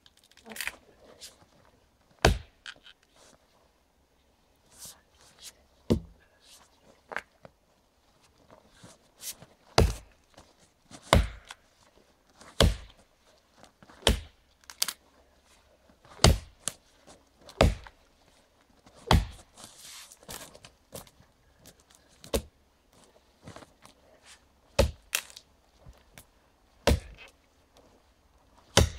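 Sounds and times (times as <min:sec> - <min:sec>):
axe chopping tree trunk: 0:02.2 - 0:02.6, 0:09.8 - 0:10.1, 0:11.1 - 0:11.6, 0:12.6 - 0:13.0, 0:14.0 - 0:14.4, 0:16.2 - 0:16.8, 0:17.6 - 0:18.0, 0:19.1 - 0:19.4, 0:24.8 - 0:25.4, 0:26.8 - 0:27.3.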